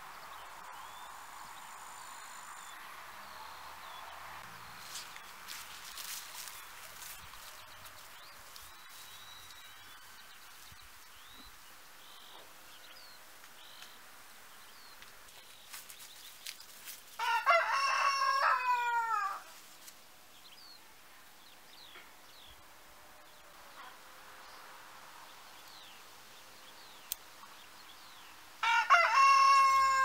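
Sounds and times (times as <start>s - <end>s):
rooster crowing: 17.2s - 19.5s, 28.6s - 30.0s.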